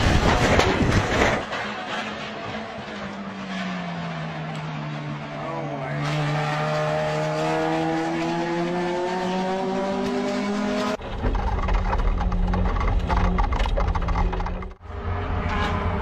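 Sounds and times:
race car engine in cockpit: 0:00.0 - 0:16.0
race car engine passing: 0:01.5 - 0:11.0, 0:14.8 - 0:16.0.

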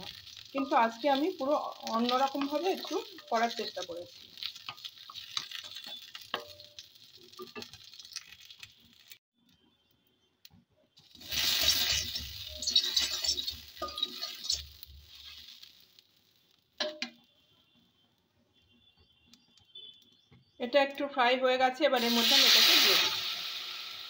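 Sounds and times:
spices sizzling in hot oil: 0:00.0 - 0:09.2, 0:11.0 - 0:17.3, 0:21.8 - 0:24.0
steel spoon scraping a pan: 0:01.8 - 0:09.1, 0:11.1 - 0:15.8, 0:22.0 - 0:24.0.

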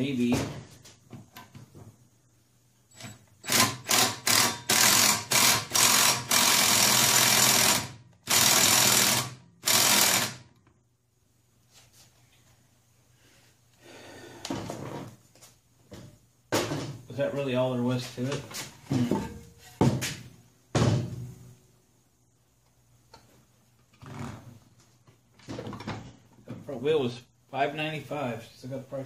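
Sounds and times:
impact wrench hammering: 0:02.9 - 0:10.4.

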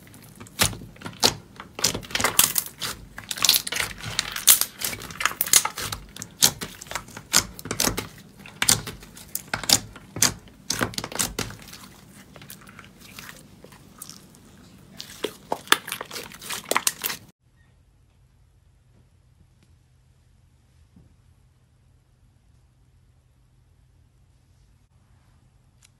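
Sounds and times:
slime popping and crackling: 0:00.0 - 0:17.3.

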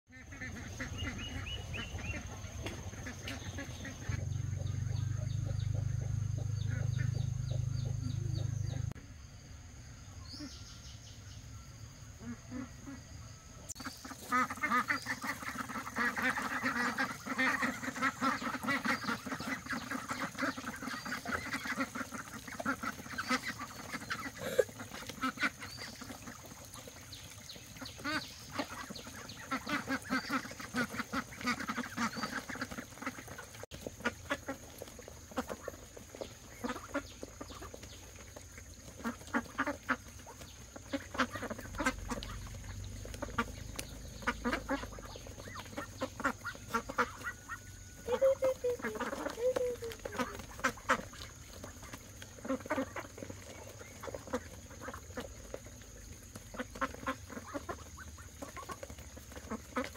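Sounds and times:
ducks quacking: 0:00.1 - 0:09.0, 0:12.2 - 0:13.2, 0:13.8 - 0:59.9
low steady rumble: 0:00.6 - 0:09.0.

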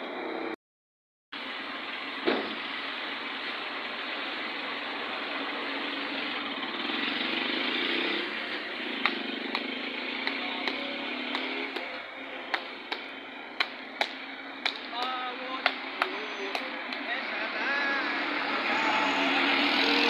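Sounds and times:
vehicle engine and tyre noise: 0:00.0 - 0:00.6, 0:01.4 - 0:20.0.

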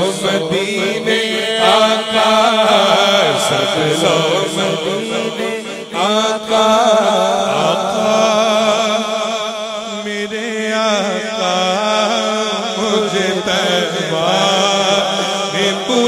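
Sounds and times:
man singing into a microphone: 0:00.0 - 0:16.0.

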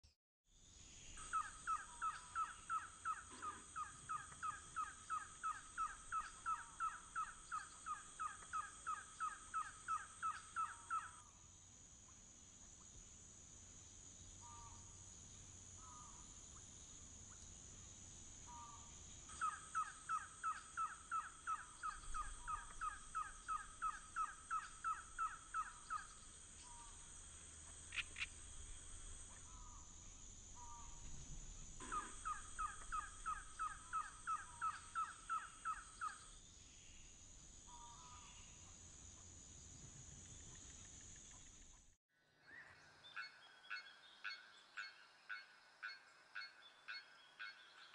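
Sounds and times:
soft short bird calls: 0:01.2 - 0:11.2, 0:31.8 - 0:36.3.

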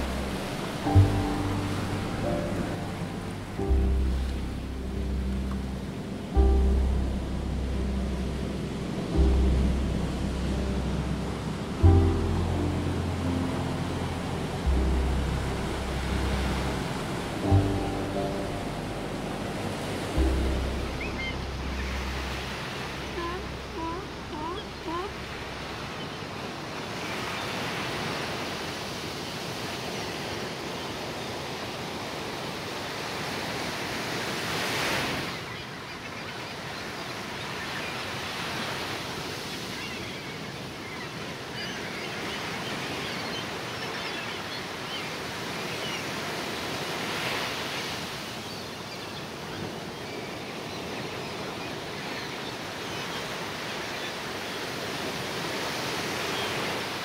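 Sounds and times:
wave breaking: 0:00.0 - 0:27.5
ocean surf washing: 0:00.0 - 0:57.0.

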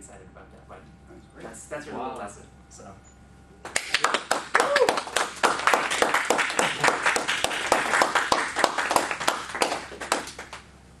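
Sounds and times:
audience applauding: 0:03.7 - 0:10.7.

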